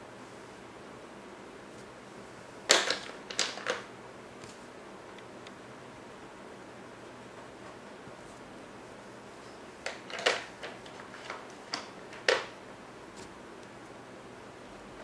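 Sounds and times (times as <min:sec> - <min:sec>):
crayons clicking on table: 0:02.7 - 0:04.6, 0:09.8 - 0:12.6.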